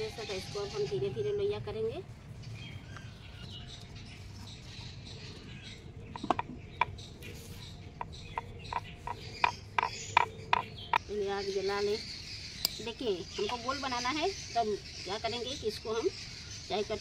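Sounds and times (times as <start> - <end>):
rolling pin clicking on stone board: 6.2 - 7.0, 8.0 - 11.0.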